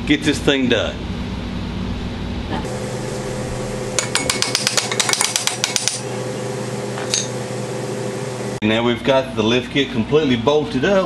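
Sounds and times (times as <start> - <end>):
steady hum: 0.0 - 8.6
ratchet wrench clicking: 4.0 - 6.0.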